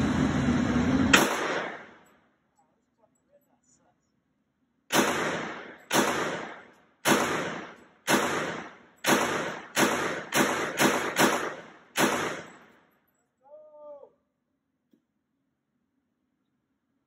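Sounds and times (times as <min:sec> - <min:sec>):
gunshots echoing indoors: 0:01.1 - 0:02.1, 0:04.9 - 0:12.8.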